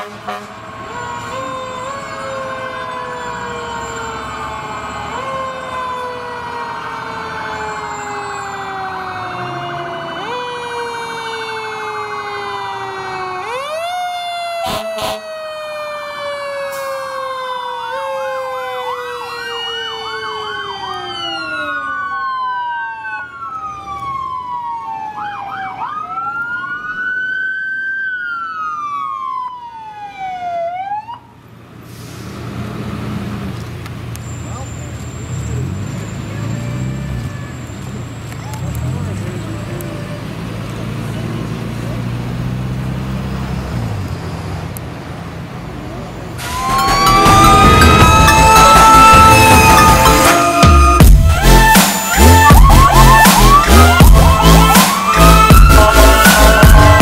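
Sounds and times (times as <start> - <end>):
emergency vehicle sirens wailing: 0.0 - 57.0.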